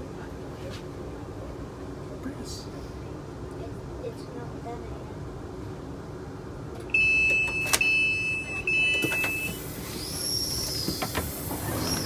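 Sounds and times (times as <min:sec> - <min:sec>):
station outdoor noise: 0:00.0 - 0:12.0
train doors clunking open: 0:06.8 - 0:12.0
high electronic warning beep: 0:06.9 - 0:09.7.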